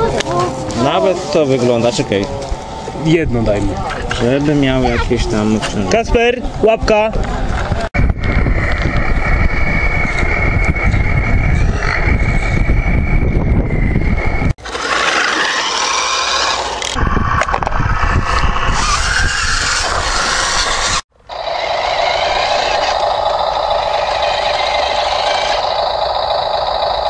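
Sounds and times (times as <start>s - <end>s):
wind noise on microphone: 2.4s - 14.6s, 16.9s - 21.0s
model truck motors whining: 8.1s - 27.0s.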